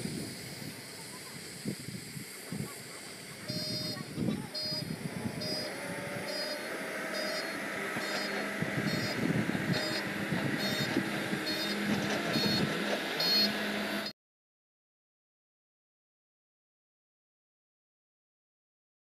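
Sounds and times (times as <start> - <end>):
diesel engine running: 0.0 - 14.1
warning beeper: 3.4 - 14.1.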